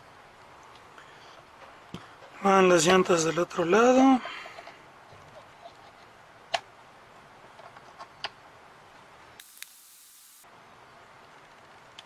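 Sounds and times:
low hiss: 0:08.4 - 0:12.0.

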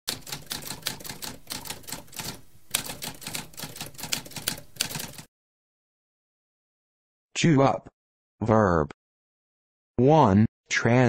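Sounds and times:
typewriter keys clacking: 0:00.1 - 0:05.3.

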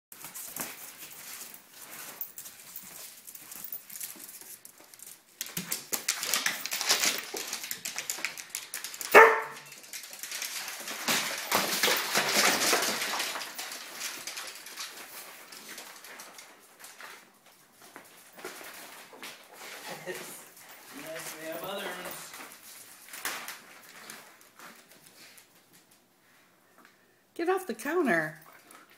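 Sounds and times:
dogs scuffling on hard floor: 0:00.1 - 0:26.4
dog barking: 0:09.1 - 0:09.7.

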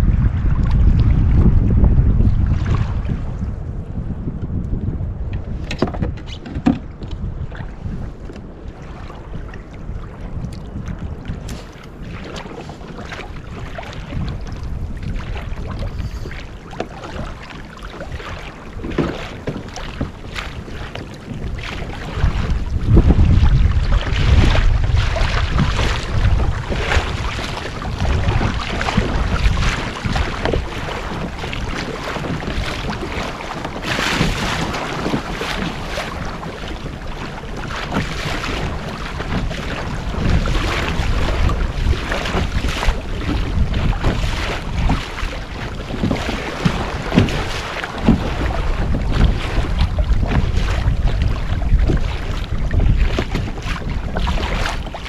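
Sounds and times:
water splashing against kayak hull: 0:00.0 - 0:55.0
wind buffeting microphone: 0:00.0 - 0:55.0.

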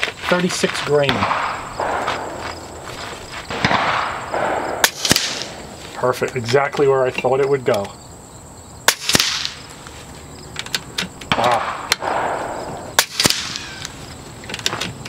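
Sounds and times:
air rifle shots: 0:01.0 - 0:02.8, 0:03.5 - 0:05.8, 0:08.8 - 0:09.7, 0:11.3 - 0:14.0.

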